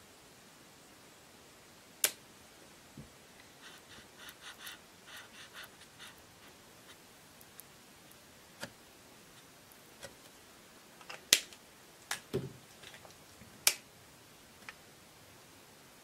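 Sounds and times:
marker scratching on paper: 3.6s - 7.0s.

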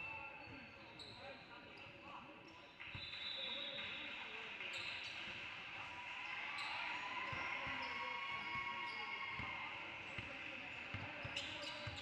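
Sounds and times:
basketball bouncing on court: 10.2s - 12.0s.

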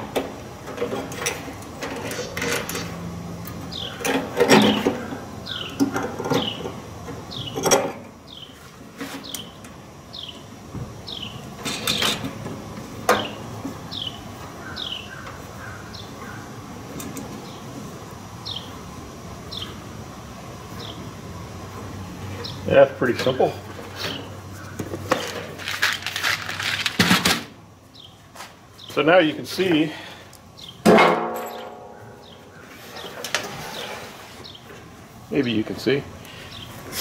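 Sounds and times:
bird chirping: 3.7s - 6.7s, 8.3s - 11.5s, 13.2s - 16.5s, 18.4s - 18.8s, 19.5s - 19.8s, 20.8s - 21.1s, 27.9s - 28.2s, 30.5s - 30.8s, 31.5s - 34.8s, 36.3s - 36.8s.

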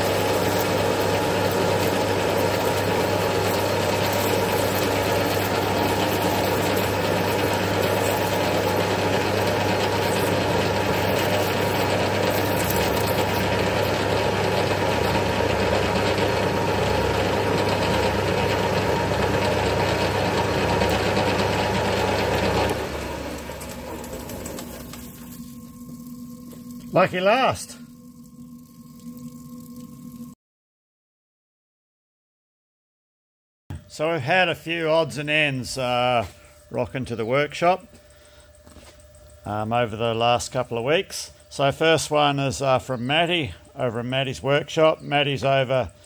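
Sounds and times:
metal lathe cutting: 0.0s - 25.6s
spinning chuck hum: 0.0s - 30.4s.

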